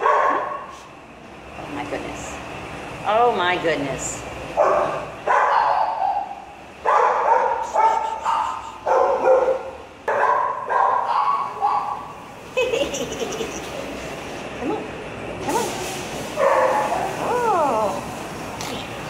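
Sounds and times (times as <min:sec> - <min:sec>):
puppy barking: 0:00.0 - 0:00.8, 0:04.6 - 0:12.1, 0:16.4 - 0:17.0.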